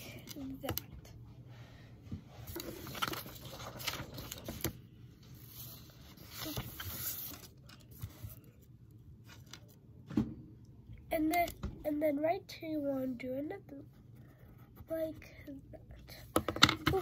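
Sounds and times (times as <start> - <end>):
paper rustling and scraping: 2.4 - 9.8.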